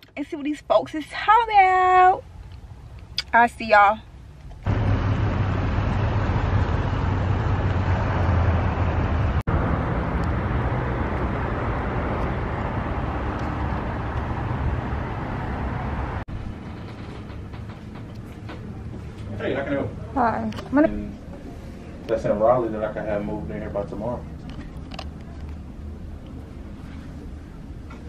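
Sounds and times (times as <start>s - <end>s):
road traffic rumble: 1.5s - 28.0s.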